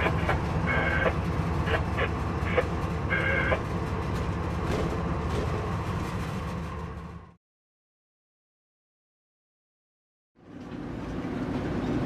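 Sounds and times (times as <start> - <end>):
diesel locomotive engine running: 0.0 - 7.4, 10.4 - 12.0.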